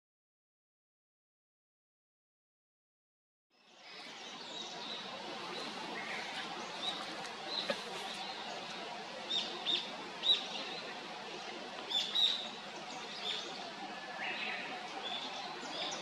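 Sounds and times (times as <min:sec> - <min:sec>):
low background hiss: 0:03.6 - 0:16.0.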